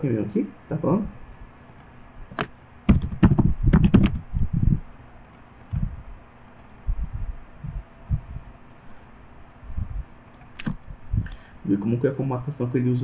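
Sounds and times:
computer keyboard typing: 1.7s - 4.4s.

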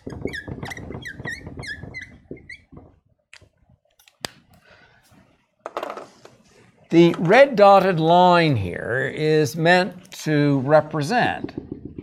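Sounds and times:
marker squeaking on whiteboard: 0.0s - 3.1s.

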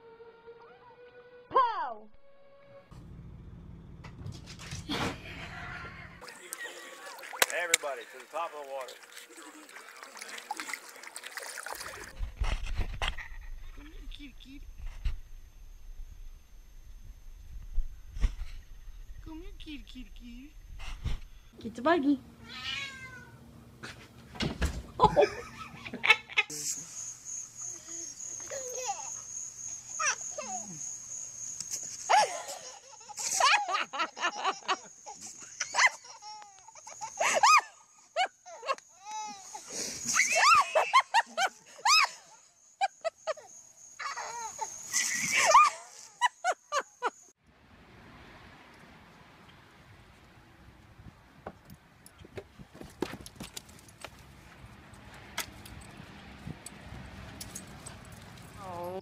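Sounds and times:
toddler laughing and squealing: 27.8s - 29.2s, 29.9s - 30.8s, 32.1s - 46.8s
dog collar tag jingling: 55.5s - 58.7s.

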